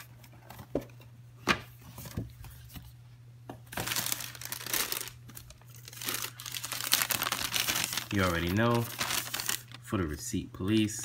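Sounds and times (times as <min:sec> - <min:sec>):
tissue paper crinkling: 0:03.7 - 0:09.9.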